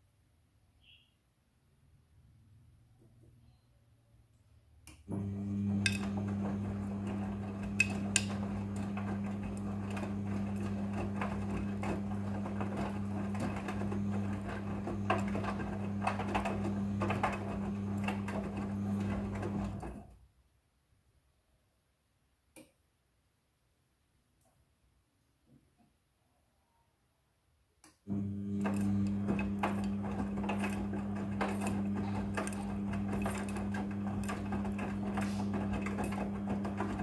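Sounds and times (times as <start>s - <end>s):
washing machine motor hum: 5.0s - 20.2s, 28.1s - 37.0s
wet laundry tumbling: 5.1s - 20.0s, 28.1s - 37.0s.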